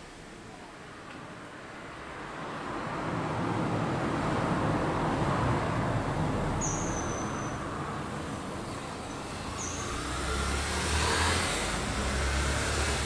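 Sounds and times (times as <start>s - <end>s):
road vehicle passing: 1.5s - 13.0s
thin high whistle: 6.6s - 7.6s.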